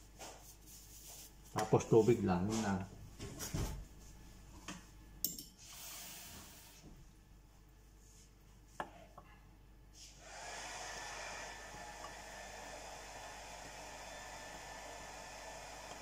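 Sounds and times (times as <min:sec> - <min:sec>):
steady hiss: 0:05.6 - 0:06.9.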